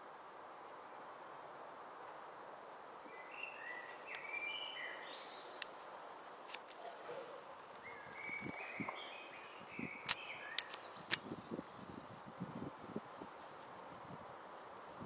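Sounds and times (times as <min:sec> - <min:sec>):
small birds chirping: 0:03.0 - 0:12.3
sharp clicks: 0:10.0 - 0:11.3.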